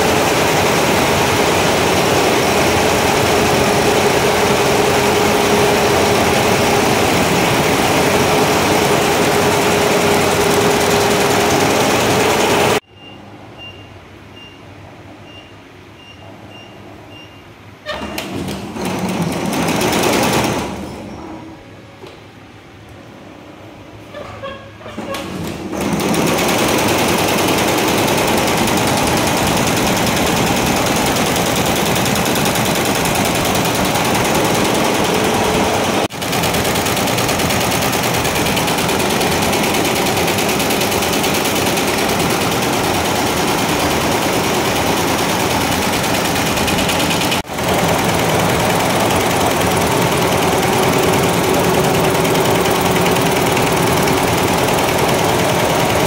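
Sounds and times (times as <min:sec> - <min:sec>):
embroidery machine clattering: 0:00.0 - 0:12.8, 0:25.3 - 0:56.0.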